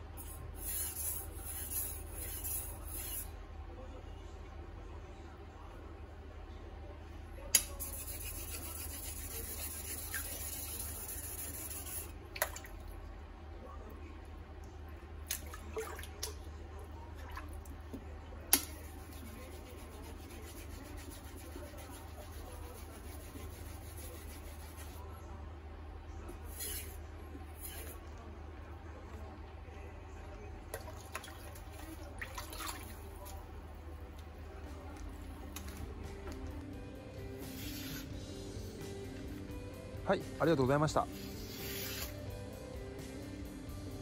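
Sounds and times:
knife rubbing on whetstone: 0:00.6 - 0:03.3, 0:07.8 - 0:12.1, 0:18.8 - 0:25.0, 0:26.5 - 0:27.0, 0:37.4 - 0:38.1, 0:41.2 - 0:42.2.

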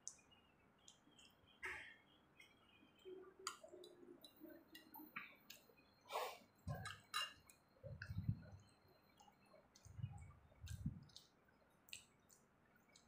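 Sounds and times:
fork clinking on plate: 0:06.8 - 0:07.4
low muffled sounds: 0:07.8 - 0:08.6
chewing sounds: 0:09.2 - 0:13.0.

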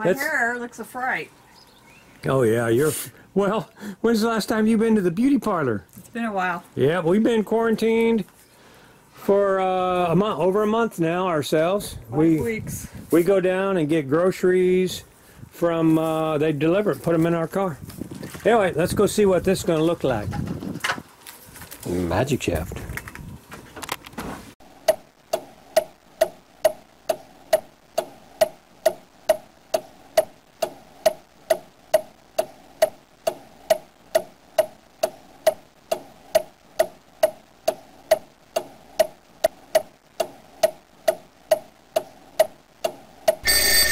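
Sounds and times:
clock ticking: 0:24.8 - 0:32.1, 0:32.8 - 0:43.6.

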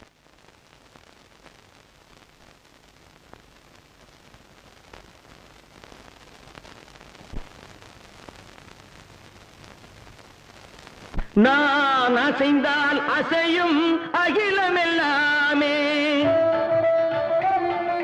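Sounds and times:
old film soundtrack hiss: 0:00.0 - 0:18.0
man singing: 0:11.4 - 0:18.0.

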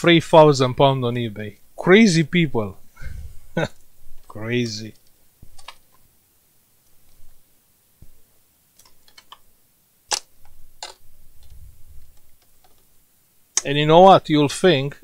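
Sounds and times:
plastic clicks and snaps: 0:10.1 - 0:12.9.

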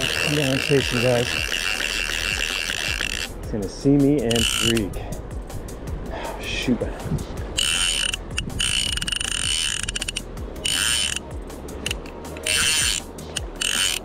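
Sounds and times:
fly reel drag buzzing: 0:00.0 - 0:03.5, 0:04.2 - 0:05.0, 0:07.4 - 0:14.0.

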